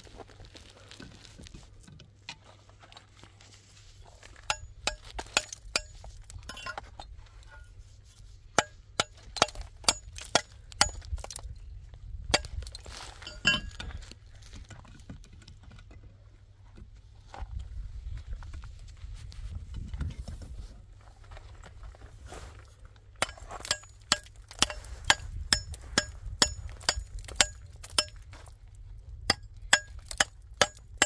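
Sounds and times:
low steady rumble: 0:02.6 - 0:15.0, 0:15.6 - 0:31.0
hard objects clinking: 0:13.2 - 0:13.9.

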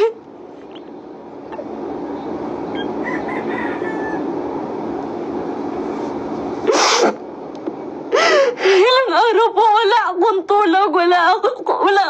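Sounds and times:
steady noise with low hum: 0:00.0 - 0:12.0
faint rooster crowing: 0:02.7 - 0:04.6.

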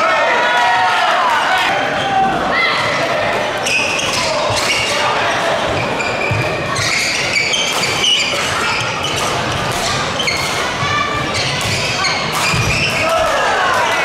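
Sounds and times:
spectators' voices: 0:00.0 - 0:14.0
sneakers squeaking on wooden floor: 0:03.6 - 0:13.0.

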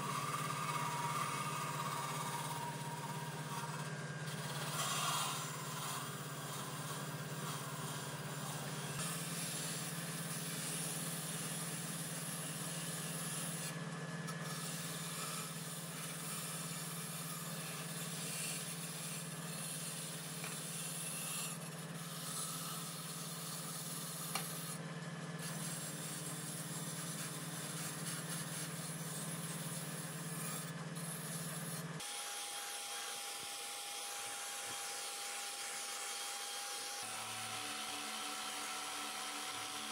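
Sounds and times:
electric drill whining: 0:00.0 - 0:13.7, 0:14.3 - 0:24.8, 0:25.4 - 0:39.9
bench grinder grinding metal: 0:00.0 - 0:39.9.

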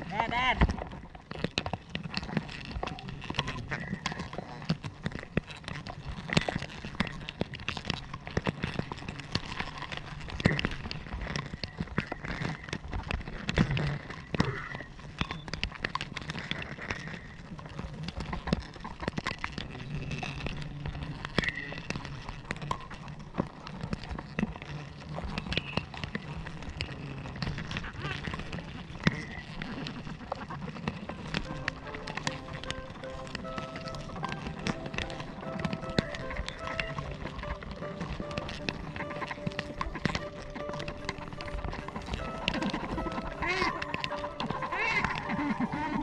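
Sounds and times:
bees buzzing: 0:30.7 - 0:46.0.

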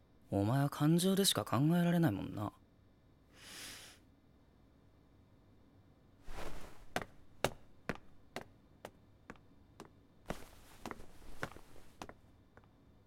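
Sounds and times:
short rustle: 0:06.3 - 0:07.1, 0:10.3 - 0:12.1
footsteps on a hard floor: 0:06.3 - 0:12.2.

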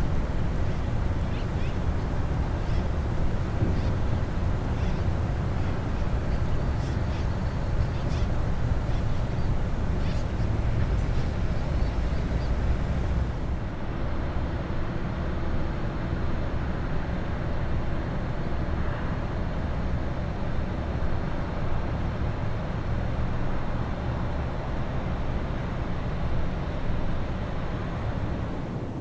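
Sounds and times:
faint hum: 0:00.0 - 0:19.2.

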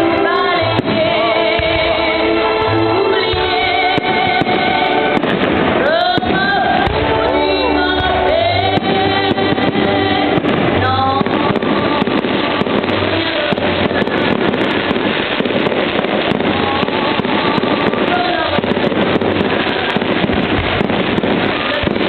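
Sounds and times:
fireworks crackling and popping: 0:00.0 - 0:22.0.

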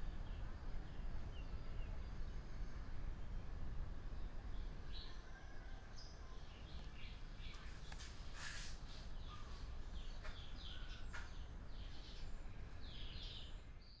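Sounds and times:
low background rumble: 0:00.0 - 0:07.9
small birds chirping: 0:00.0 - 0:14.0
brief hiss: 0:08.0 - 0:09.1.

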